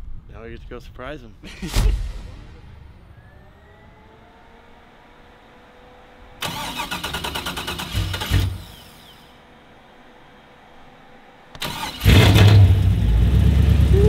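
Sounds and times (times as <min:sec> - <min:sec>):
engine firing with low blasts: 0:01.6 - 0:09.4, 0:11.5 - 0:14.0
starter motor cranking: 0:06.4 - 0:09.2.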